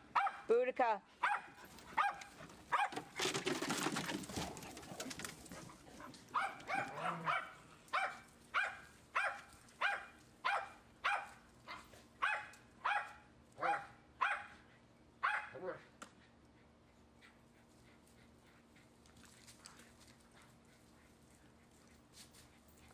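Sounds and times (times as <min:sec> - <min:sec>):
dog barking: 0:00.1 - 0:00.5, 0:01.2 - 0:03.0, 0:06.3 - 0:14.6, 0:15.2 - 0:15.7
rustling and scuffling: 0:01.5 - 0:07.1.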